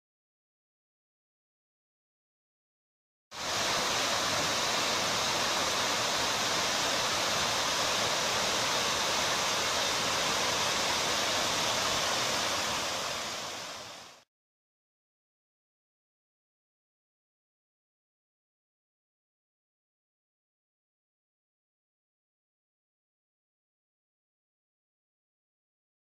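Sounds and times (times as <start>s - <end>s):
small waterfall rushing: 3.3s - 14.3s.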